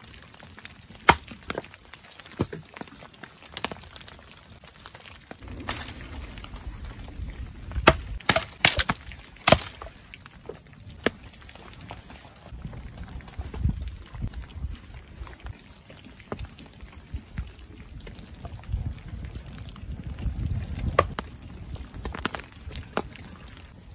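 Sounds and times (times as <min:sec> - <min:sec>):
campfire wood cracking: 0:00.0 - 0:23.9
fire crackling: 0:00.0 - 0:23.9
low rumble: 0:05.4 - 0:08.3.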